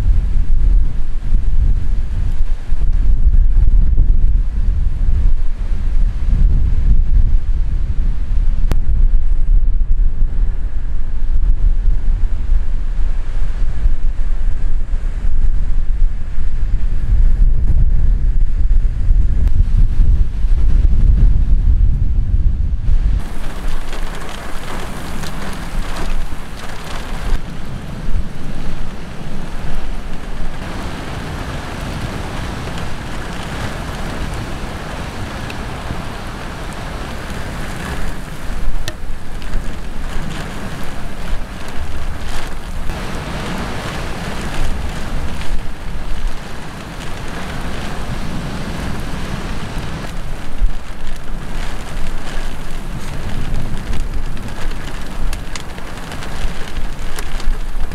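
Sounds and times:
wind gusts buffeting microphone: 0.0 - 57.9
rain falling: 23.1 - 57.9.

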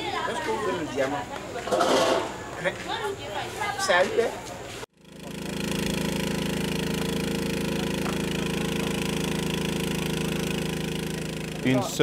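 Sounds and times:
small engine running: 4.9 - 12.0.

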